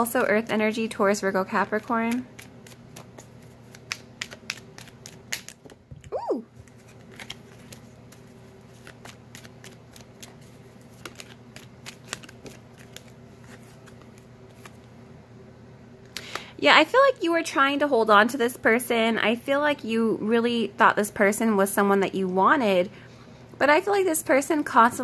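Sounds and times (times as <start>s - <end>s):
cards shuffling: 1.5s - 14.9s.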